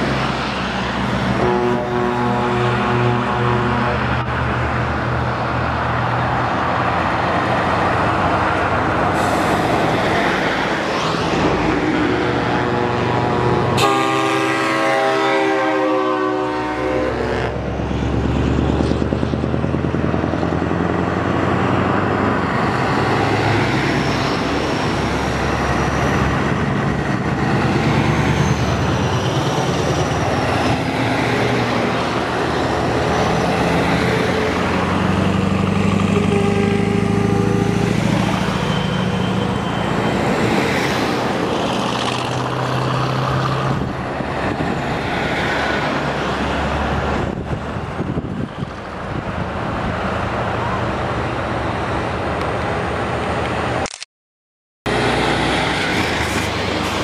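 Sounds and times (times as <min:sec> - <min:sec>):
heavy trucks passing: 0:00.0 - 0:53.9, 0:54.9 - 0:57.0
air horn chord: 0:01.4 - 0:04.0, 0:12.5 - 0:17.6, 0:36.2 - 0:37.9.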